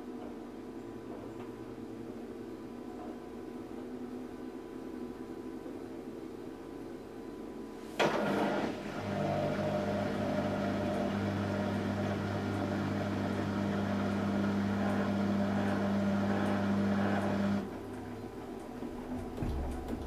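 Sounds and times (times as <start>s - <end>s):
washing machine drum motor humming: 8.0s - 20.0s.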